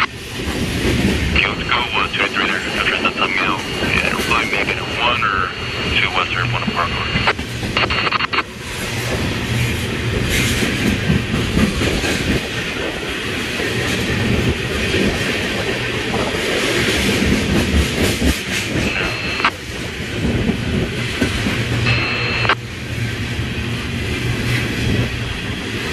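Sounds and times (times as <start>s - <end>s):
train wheels clattering: 8.8s - 18.9s.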